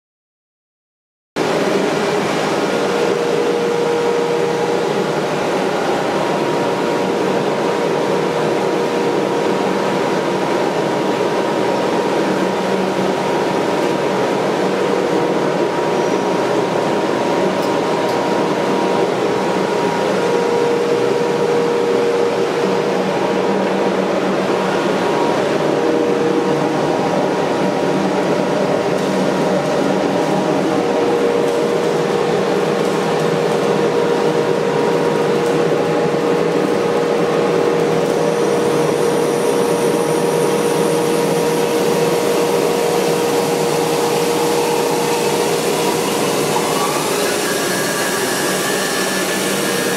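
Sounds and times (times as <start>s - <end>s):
band saw running idle: 38.0s - 49.9s.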